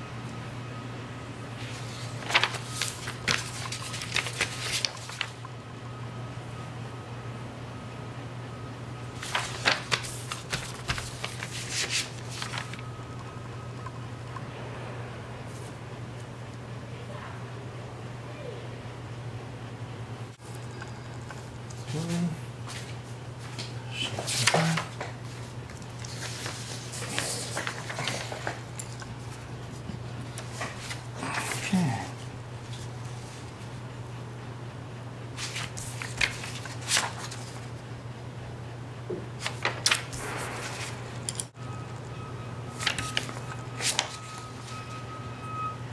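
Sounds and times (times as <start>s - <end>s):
low electrical hum: 0.0s - 45.9s
paper rustling and crinkling: 1.6s - 5.4s, 9.2s - 12.9s, 22.7s - 31.8s, 35.4s - 37.8s, 39.4s - 41.2s, 42.8s - 44.8s.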